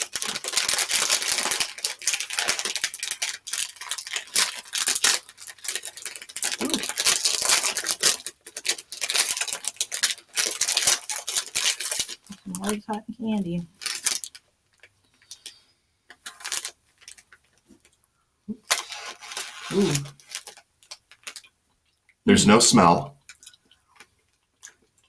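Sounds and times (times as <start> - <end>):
snack bag crinkling: 0.0 - 12.9, 13.7 - 22.2, 23.2 - 25.0.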